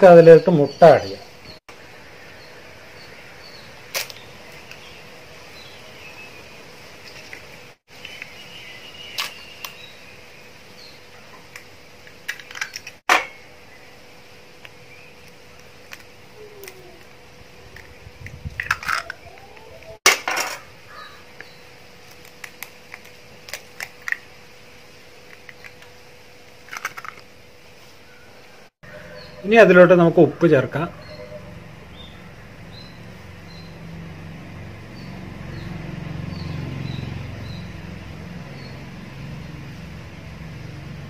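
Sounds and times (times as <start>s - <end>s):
eggshells cracking: 26.7s - 27.2s.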